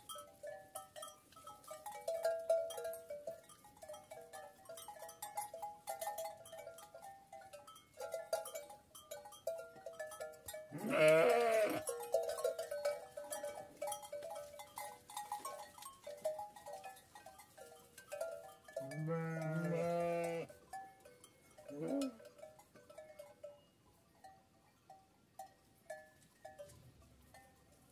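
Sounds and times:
sheep bleating: 10.7 - 11.8, 18.9 - 20.5.

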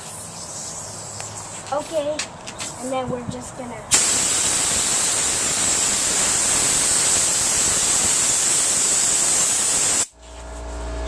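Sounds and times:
air blow gun hissing: 3.9 - 10.2.

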